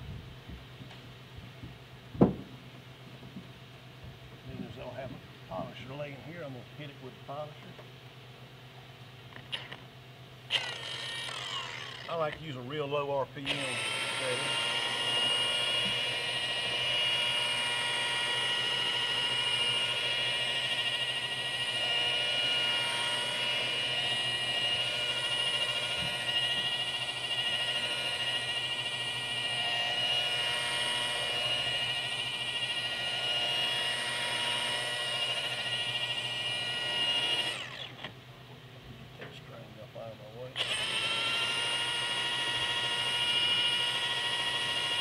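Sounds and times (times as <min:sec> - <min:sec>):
electric polisher motor whine: 0:10.5 - 0:12.6, 0:13.4 - 0:38.2, 0:40.6 - 0:45.0.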